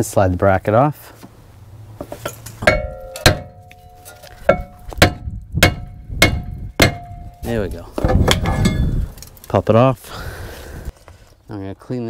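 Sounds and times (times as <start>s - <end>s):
sledgehammer striking metal rotor: 2.6s - 7.4s.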